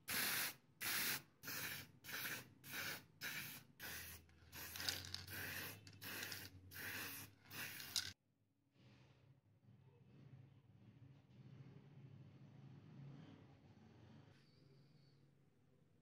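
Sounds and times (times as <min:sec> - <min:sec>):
spray paint can hissing bursts: 0:00.0 - 0:08.2.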